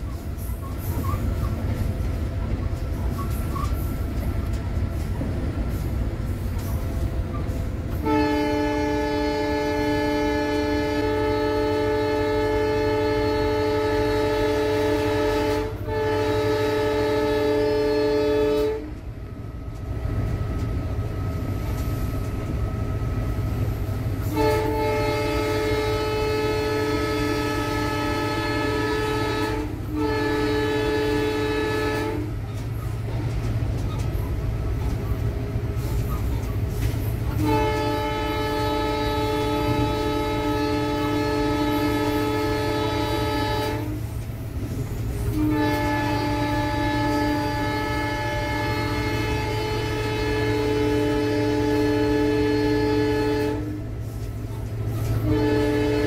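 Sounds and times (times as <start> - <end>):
locomotive rumble: 0.0 - 56.0
locomotive air horn blasts: 7.6 - 19.1, 22.4 - 32.6, 35.6 - 56.0.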